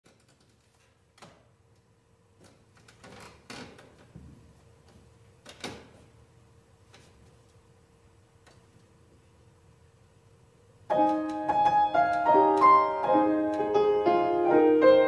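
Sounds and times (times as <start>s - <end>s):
faint steady hum: 0.1s - 15.0s
soft knocks and rustles: 2.4s - 6.1s.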